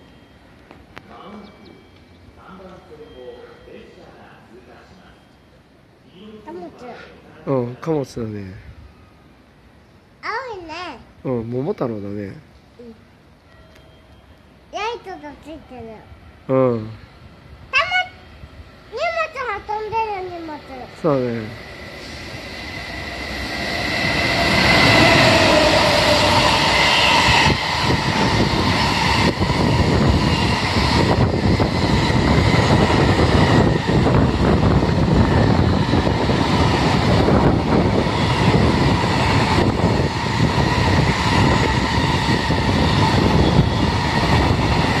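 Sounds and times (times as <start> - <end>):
locomotive whine: 0.0 - 3.9, 13.1 - 14.7, 16.2 - 45.0
electric locomotive passing: 0.0 - 45.0.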